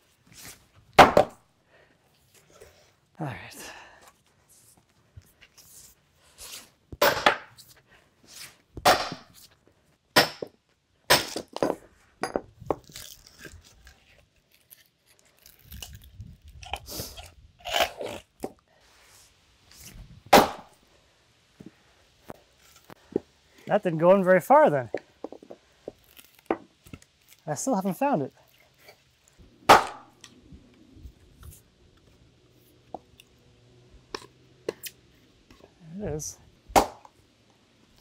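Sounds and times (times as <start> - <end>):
sledgehammer striking axe: 1.0 - 1.4, 7.0 - 7.5, 8.8 - 9.3, 10.2 - 11.6, 20.3 - 20.8, 29.7 - 30.1, 36.7 - 37.1
wood splitting apart: 20.3 - 20.7, 29.7 - 30.1, 36.8 - 37.1.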